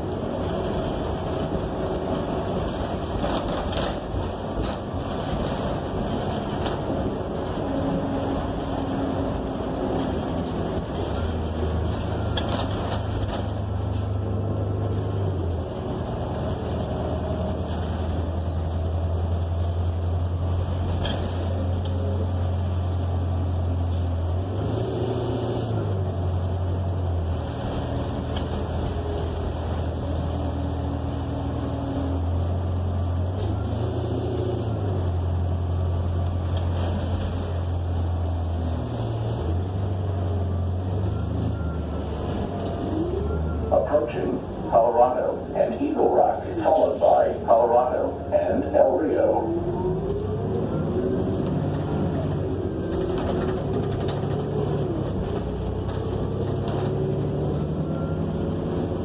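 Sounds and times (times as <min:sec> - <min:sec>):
bus engine droning: 0:00.0 - 0:59.0
road rumble: 0:00.0 - 0:59.0.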